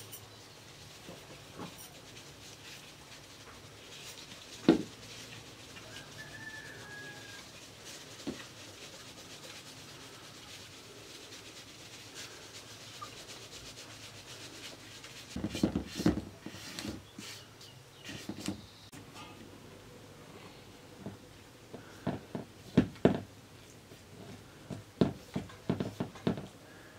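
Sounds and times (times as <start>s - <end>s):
flour rustling through sieve: 0.0s - 18.6s
sieve knocking and rattling: 1.4s - 10.3s, 15.2s - 17.0s, 21.8s - 23.3s, 24.6s - 26.5s.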